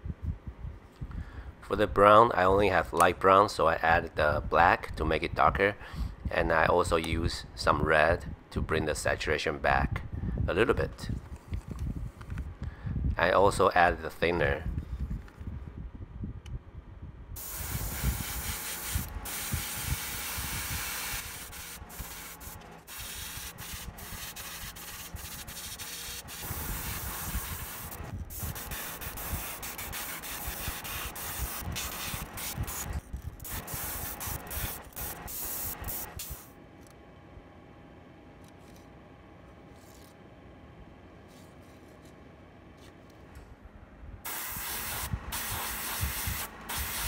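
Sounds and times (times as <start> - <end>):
airbrush spraying hiss: 17.4 - 36.5, 44.3 - 47.0.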